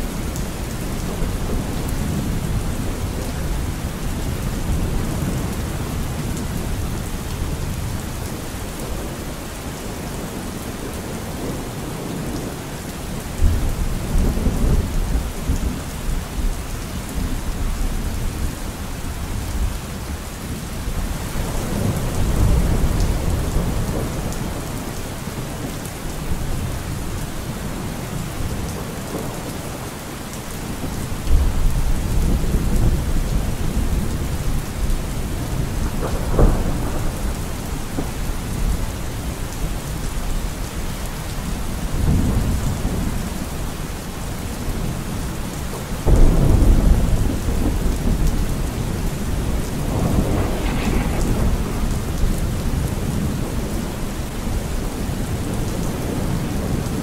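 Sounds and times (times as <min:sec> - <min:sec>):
steady rain: 0:00.0 - 0:57.0
thunder rumbling: 0:31.2 - 0:39.3, 0:46.0 - 0:57.0.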